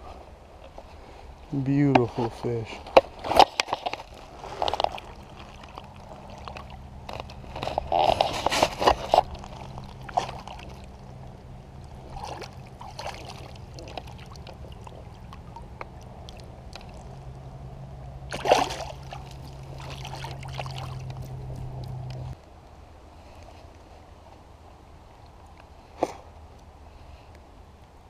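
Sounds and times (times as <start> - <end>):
shallow water splashing: 3.1 - 17.6, 18.2 - 22.4.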